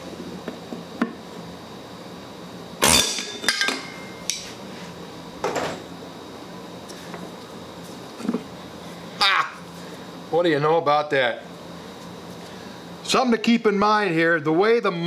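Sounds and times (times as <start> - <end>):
pneumatic air hammer bursts: 2.8 - 3.3.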